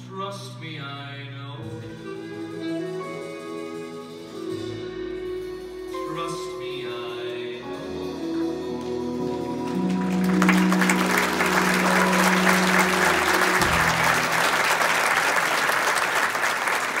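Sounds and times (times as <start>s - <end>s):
music with long held notes: 0.0s - 15.6s
audience applauding: 9.6s - 17.0s.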